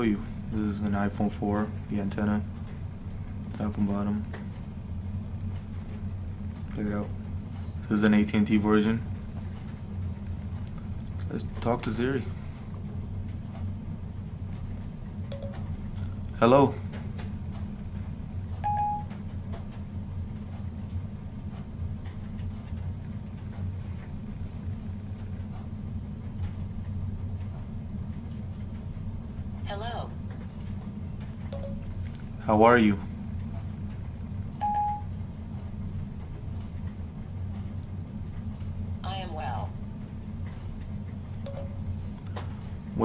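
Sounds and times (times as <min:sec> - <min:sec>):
low hum: 0:00.0 - 0:43.0
single steady beep: 0:15.3 - 0:15.7, 0:18.6 - 0:19.1, 0:31.5 - 0:32.0, 0:34.6 - 0:35.1, 0:41.4 - 0:41.8.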